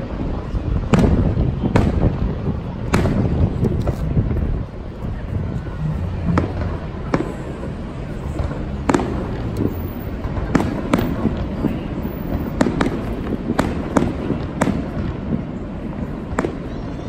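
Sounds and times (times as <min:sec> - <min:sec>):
fireworks bangs: 0:00.0 - 0:17.0
low rumble: 0:02.3 - 0:10.5.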